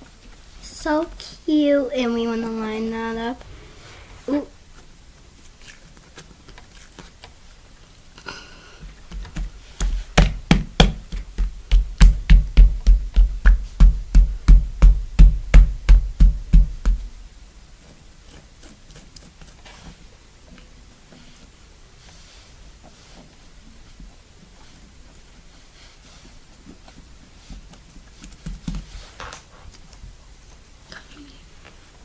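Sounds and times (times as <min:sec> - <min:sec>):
hands slapping slime: 0:09.2 - 0:17.0.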